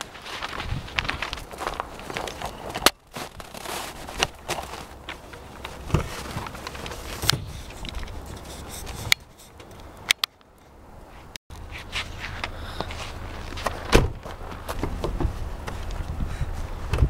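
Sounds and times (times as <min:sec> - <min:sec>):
footsteps crunching on snow: 0:00.0 - 0:08.4.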